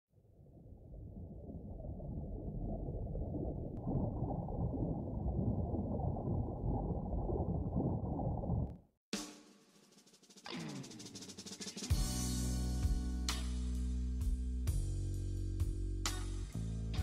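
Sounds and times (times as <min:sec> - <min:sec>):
muffled underwater rushing: 0:00.1 - 0:08.9.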